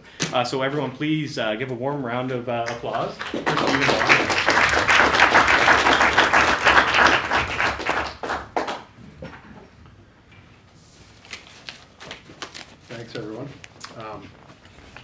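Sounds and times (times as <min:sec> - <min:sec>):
audience applauding: 0:03.0 - 0:08.9.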